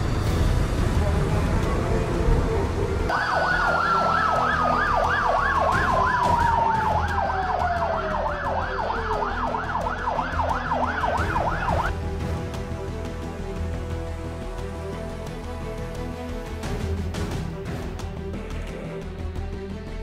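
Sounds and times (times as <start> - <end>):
low street rumble: 0.0 - 19.7
siren tone sliding down: 3.1 - 11.9
siren yelping: 3.1 - 11.9.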